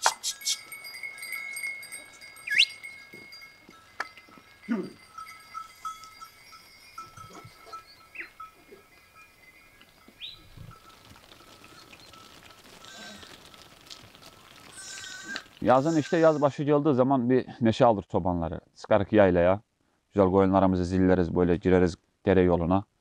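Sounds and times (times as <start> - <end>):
sheep bells tinkling: 0.0 - 16.6
sheep bleating: 12.8 - 13.4, 14.7 - 16.6.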